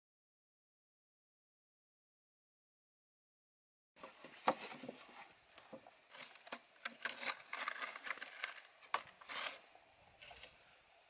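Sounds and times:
hands handling wooden boards: 0:04.0 - 0:10.6
screws clinking: 0:07.1 - 0:09.6.

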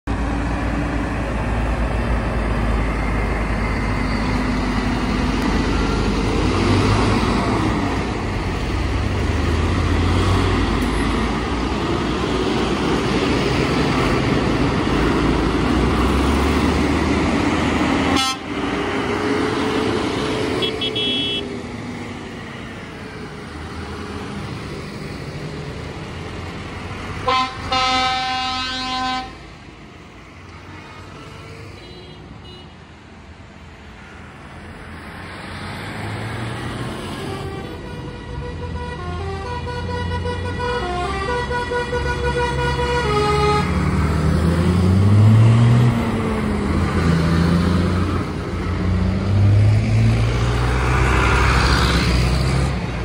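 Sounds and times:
tractors driving past: 0:00.1 - 0:53.0
long horn blast: 0:18.1 - 0:18.6, 0:27.2 - 0:29.4, 0:37.0 - 0:44.0
tractor horn toot: 0:18.2 - 0:18.5, 0:20.6 - 0:21.5, 0:27.3 - 0:29.4, 0:37.2 - 0:43.7.

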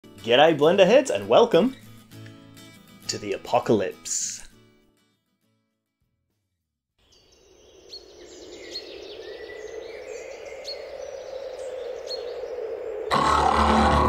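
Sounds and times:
birds chirping: 0:07.0 - 0:14.0.

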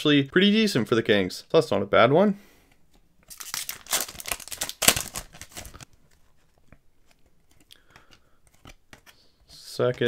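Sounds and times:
foil wrapper tearing and crinkling: 0:03.3 - 0:05.8.

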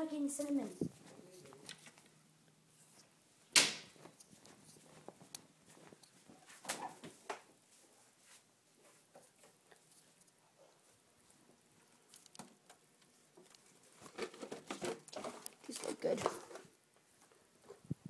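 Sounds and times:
rustling: 0:03.8 - 0:18.0.

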